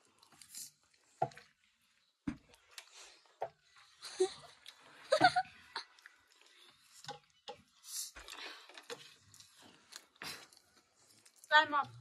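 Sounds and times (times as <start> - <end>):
chewing and mouth sounds: 5.5 - 12.0
breathing: 8.2 - 8.9.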